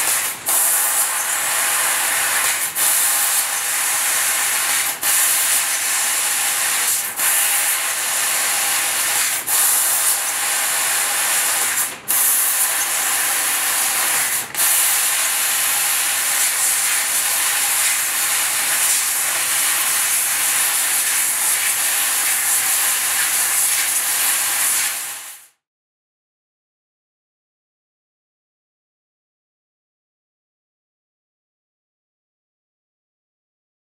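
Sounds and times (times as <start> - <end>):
laser cutter gas hiss: 0.0 - 25.5.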